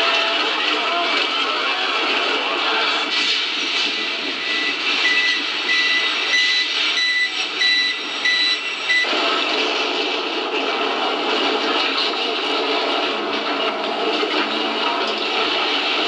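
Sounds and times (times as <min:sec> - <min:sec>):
high electronic beep: 0:04.3 - 0:09.1.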